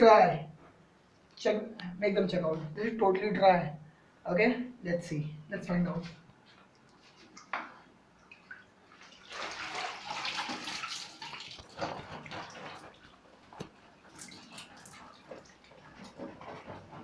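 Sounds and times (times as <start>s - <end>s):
water sloshing in a bucket: 6.6s - 17.0s.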